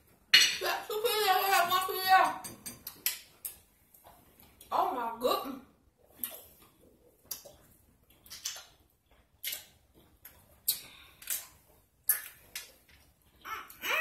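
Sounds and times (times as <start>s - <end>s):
wet mouth smacks chewing gum: 6.1s - 12.8s.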